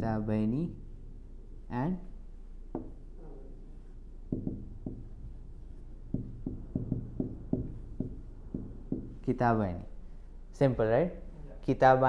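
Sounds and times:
marker tapping on whiteboard: 2.7s - 3.0s, 4.3s - 5.4s, 6.0s - 9.3s.

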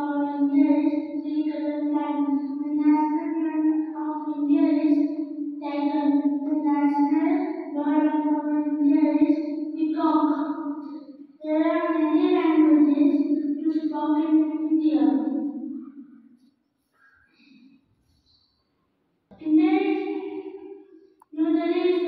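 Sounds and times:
child singing into microphone: 5.6s - 10.3s.

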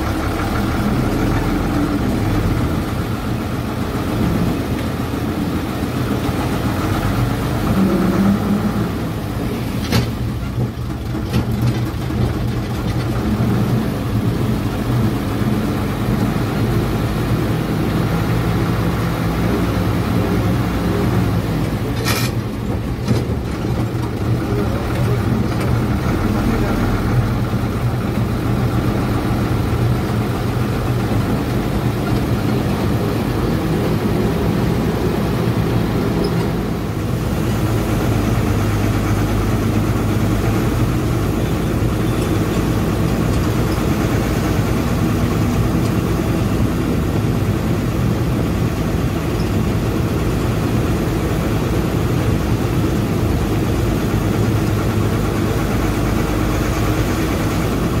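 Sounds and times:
bus diesel engine running: 0.0s - 58.0s.

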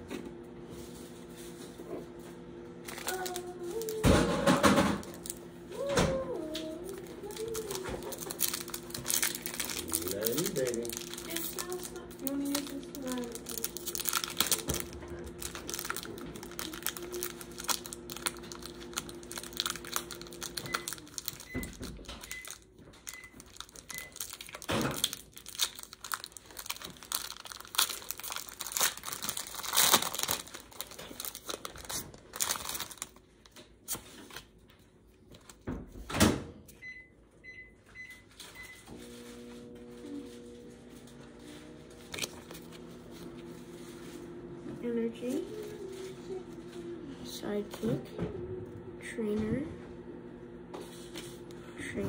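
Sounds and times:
steady hum: 0.0s - 33.2s
foil wrapper crinkling and tearing: 2.8s - 34.6s, 42.0s - 43.2s.

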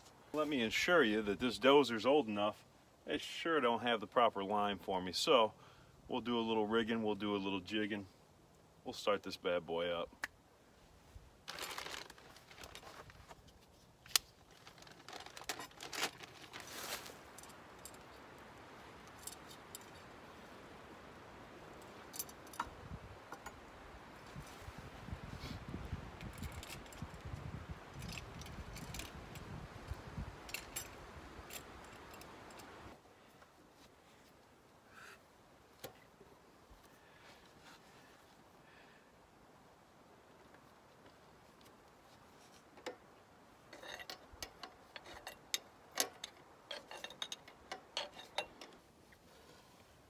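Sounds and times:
plastic bag rustling and crinkling: 11.4s - 18.2s
metal tools clinking: 19.0s - 20.2s, 21.8s - 22.7s, 30.4s - 32.8s, 43.7s - 48.8s
light clicks of parts: 26.1s - 33.6s, 43.7s - 49.9s.

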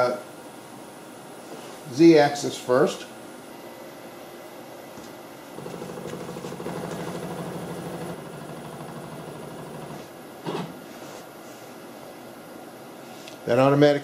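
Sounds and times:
cnc router motor hum: 5.6s - 10.1s.

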